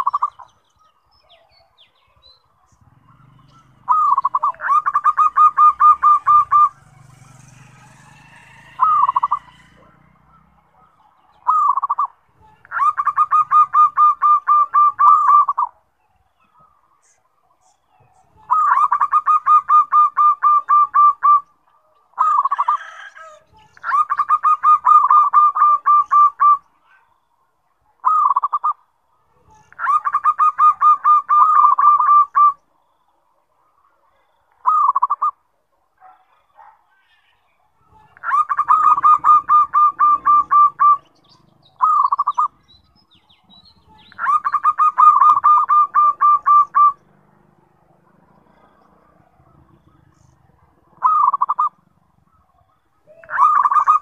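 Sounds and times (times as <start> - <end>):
dove singing: 0.0 - 27.1, 27.7 - 33.0, 34.2 - 54.0.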